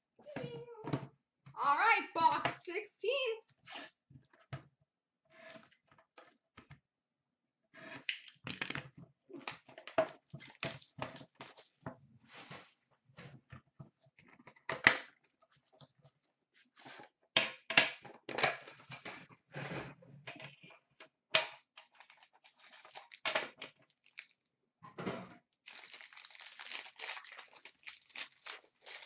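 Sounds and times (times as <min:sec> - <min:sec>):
cardboard and plastic rustling tearing: 0:21.9 - 0:24.4, 0:25.6 - 0:29.0.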